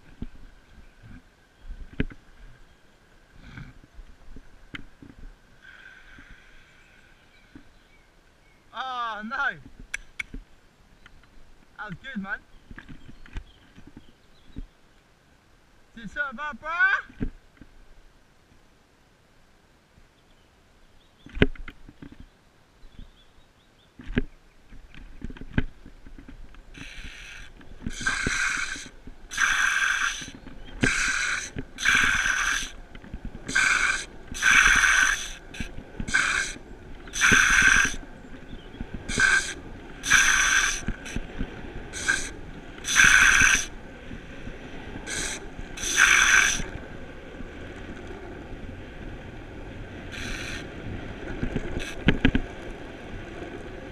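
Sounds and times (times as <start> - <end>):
skateboard wheels rolling on asphalt: 0.0 - 8.6, 12.4 - 15.0, 21.0 - 53.9
skateboard wheels sliding squeals: 50.0 - 52.2.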